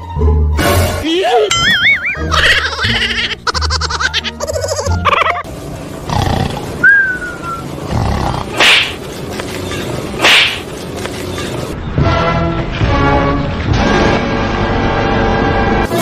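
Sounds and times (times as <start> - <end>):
music: 0.0 - 5.8, 11.4 - 16.0.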